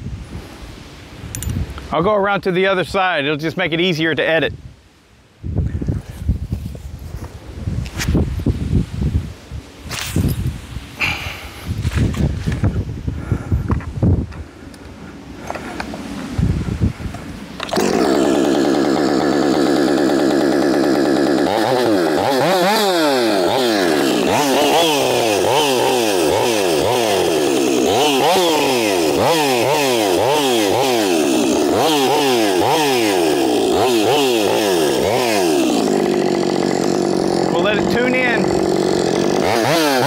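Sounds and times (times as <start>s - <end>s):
chainsaw idling and revving: 17.4s - 40.0s.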